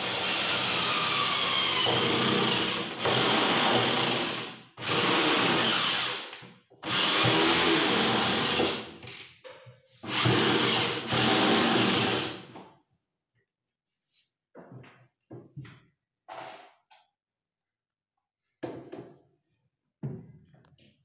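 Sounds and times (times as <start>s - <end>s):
electric drill running: 0.0s - 8.9s, 10.1s - 12.5s.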